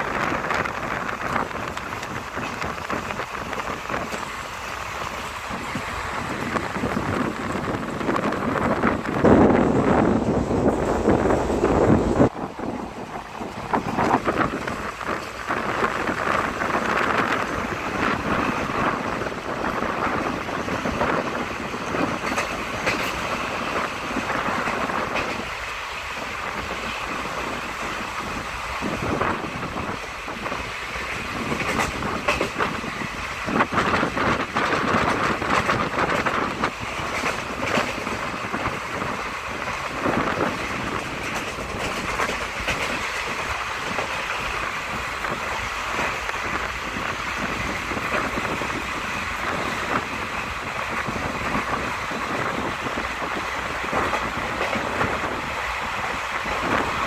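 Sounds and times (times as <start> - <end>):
train rumble and rushing air: 0.0 - 57.0
wheels clattering over rail joints: 29.3 - 48.7.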